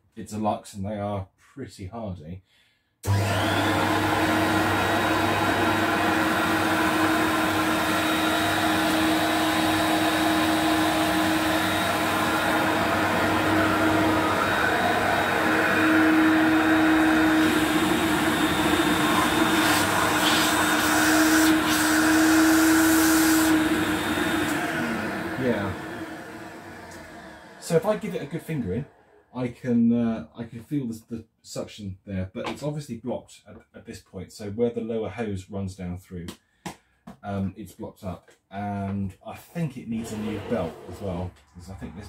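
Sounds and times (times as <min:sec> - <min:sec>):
vacuum cleaner motor humming: 0:03.0 - 0:29.2, 0:39.9 - 0:41.3.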